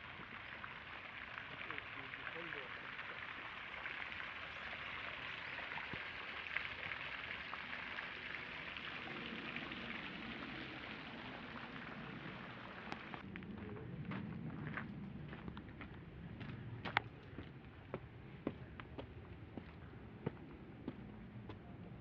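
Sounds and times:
fountain splashing: 0.0 - 13.2.

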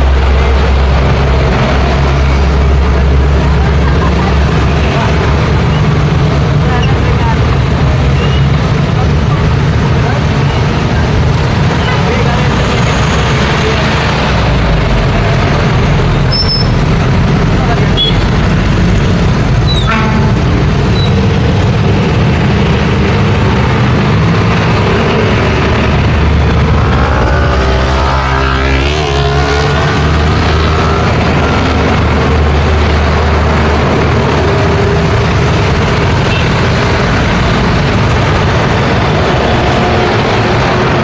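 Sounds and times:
low diesel engine rumble: 0.0 - 41.0
truck engine passing close: 0.0 - 41.0
trucks and motorcycles passing: 0.0 - 41.0
brief high squeal: 16.3 - 16.8.

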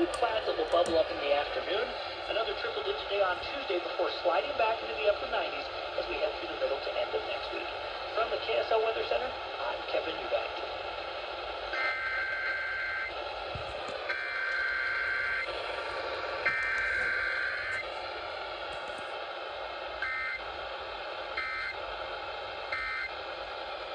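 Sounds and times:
steady background hiss: 0.0 - 23.9
warbling data bursts from radio: 11.7 - 13.2, 14.0 - 17.9, 20.0 - 20.4, 21.3 - 21.8, 22.7 - 23.1.

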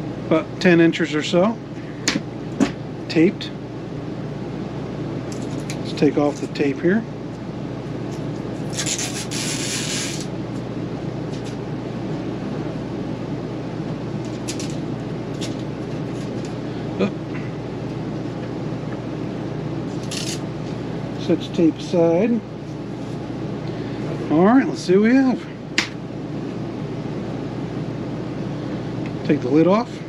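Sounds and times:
background hum: 0.0 - 30.0
packing tape ripping: 8.6 - 10.3, 20.0 - 20.4.

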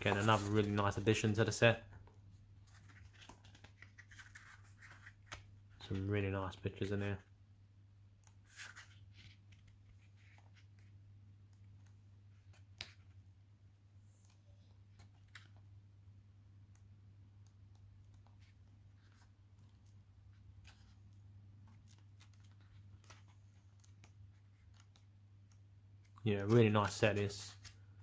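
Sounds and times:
paper pages turning: 0.0 - 1.3, 2.6 - 6.1, 8.2 - 11.0, 14.1 - 15.6, 18.0 - 27.9.

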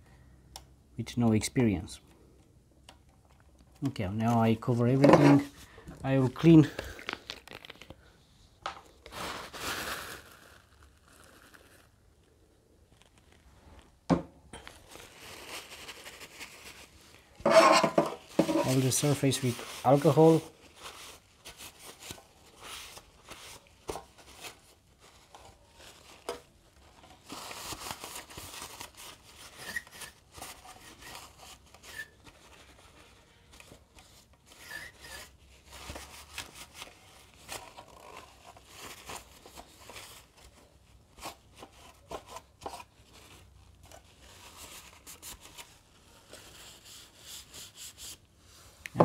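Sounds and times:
paper towel rubbing on plastic: 18.3 - 23.7.

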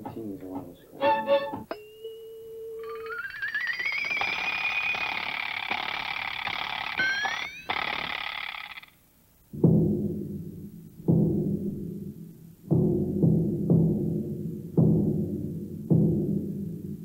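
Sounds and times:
hissing whistle sliding upward: 1.2 - 8.7
large bass drum booming: 9.6 - 14.2.

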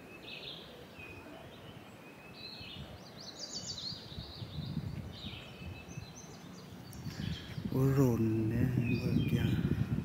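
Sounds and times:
birds singing: 0.0 - 10.0
outdoor background noise: 0.0 - 10.0.

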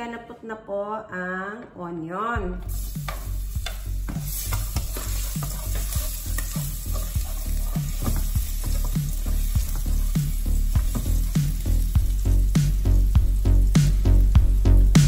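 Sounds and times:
onion sizzling in a pot: 2.6 - 15.0
wooden spoon stirring: 3.1 - 11.9.

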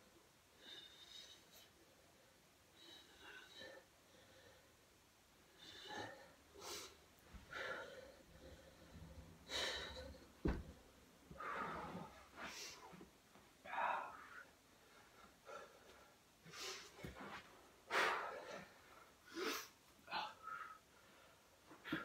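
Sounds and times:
dull thump: 10.4 - 10.8.

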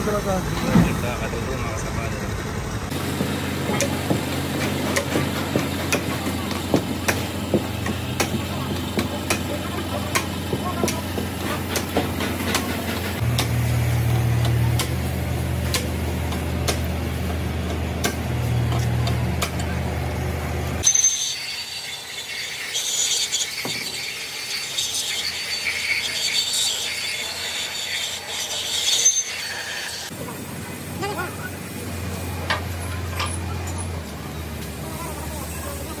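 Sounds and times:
tooling squealing on metal: 20.8 - 30.1.

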